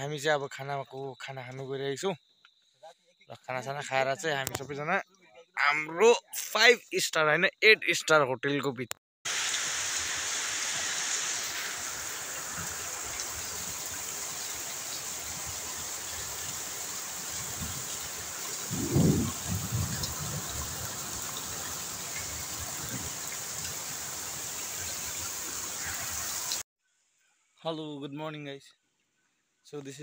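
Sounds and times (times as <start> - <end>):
campfire hissing and crackling: 9.3 - 26.6.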